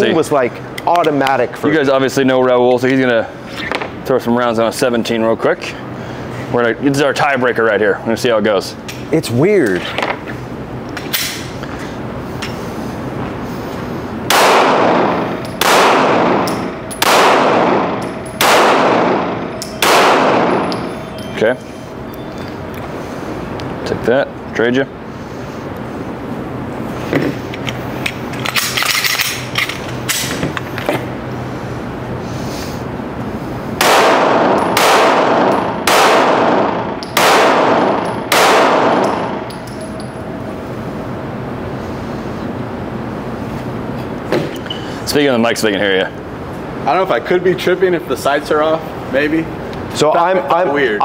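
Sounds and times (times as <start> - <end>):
pistol shots echoing indoors: 14.3 - 21.2, 33.8 - 40.0.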